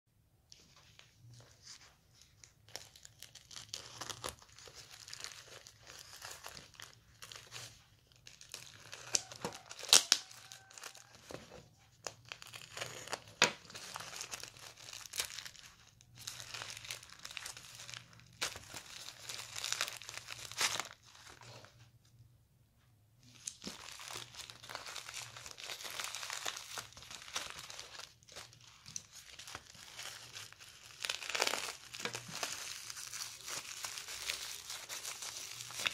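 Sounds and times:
bubble wrap snapping: 0:01.6 - 0:21.7, 0:23.3 - 0:35.9
plastic mailer tearing: 0:08.4 - 0:11.2, 0:23.4 - 0:35.9.

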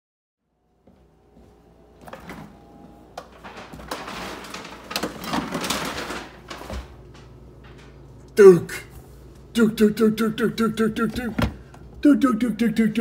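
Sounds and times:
refrigerator doors clicking: 0:02.0 - 0:07.0.

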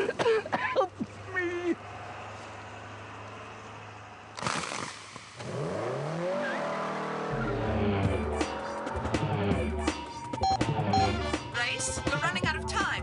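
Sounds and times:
race car engine revving: 0:02.6 - 0:09.7.

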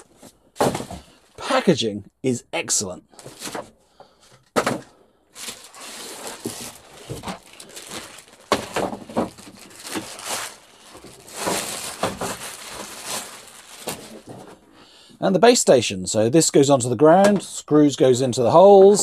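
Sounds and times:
plastic bag crinkling: 0:05.3 - 0:14.6.

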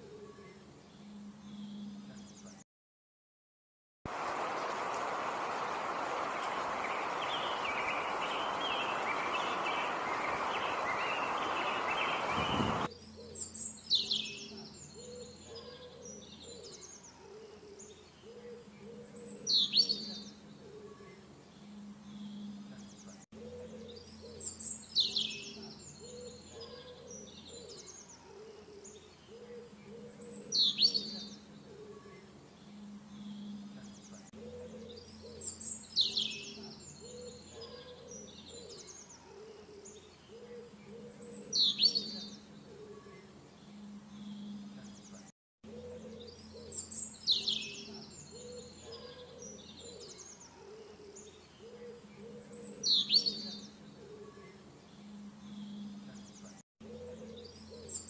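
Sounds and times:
bird calling high notes: 0:05.6 - 0:12.9.

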